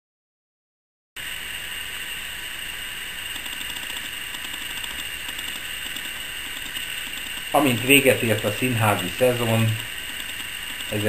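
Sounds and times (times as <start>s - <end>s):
faint high whine: 1.2s - 11.0s
recording noise hiss: 1.2s - 11.0s
rapid ticking: 2.6s - 11.0s.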